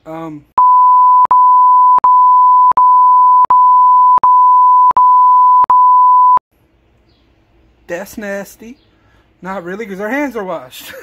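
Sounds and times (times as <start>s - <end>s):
high electronic bleep tone: 0.6s - 6.4s.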